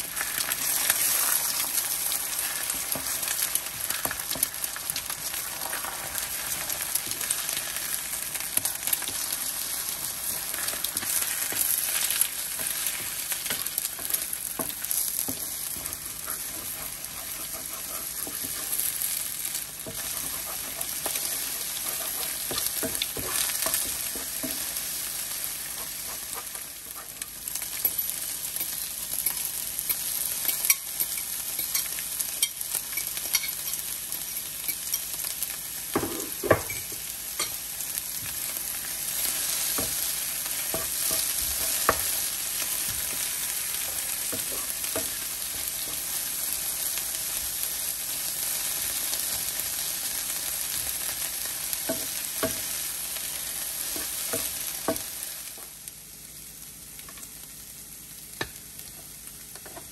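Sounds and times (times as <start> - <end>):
eggs sizzling in a frying pan: 0.0 - 59.9
spatula scraping a pan: 9.9 - 19.1, 19.8 - 26.7.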